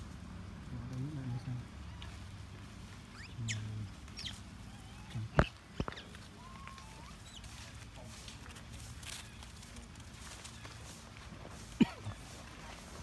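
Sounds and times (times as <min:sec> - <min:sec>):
high-pitched animal chirps: 0:04.2 - 0:07.4.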